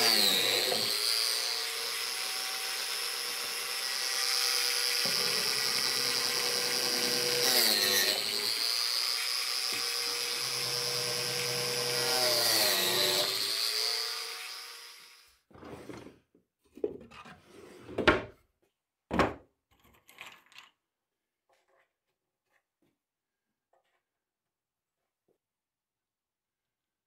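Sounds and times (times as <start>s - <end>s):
biscuit joiner motor running: 0.0s - 15.2s.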